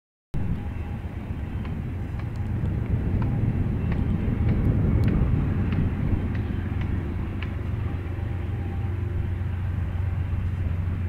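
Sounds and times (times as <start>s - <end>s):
freight train rumble: 0.4s - 11.0s.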